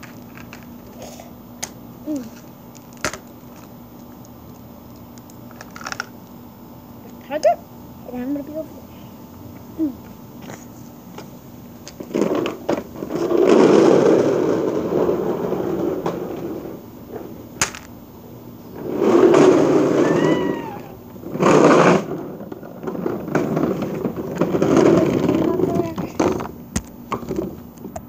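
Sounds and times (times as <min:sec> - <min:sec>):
plastic toy wheels rolling on concrete: 0:00.0 - 0:01.0, 0:01.6 - 0:06.2, 0:11.8 - 0:17.9, 0:18.7 - 0:28.0.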